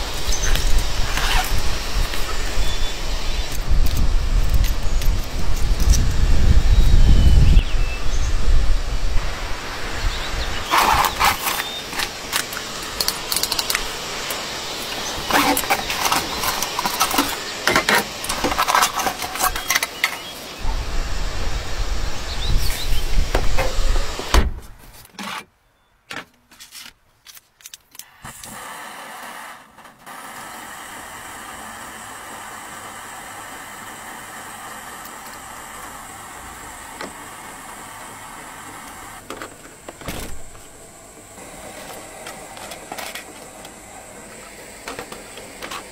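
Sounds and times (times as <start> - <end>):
low rumble: 20.6 - 23.9.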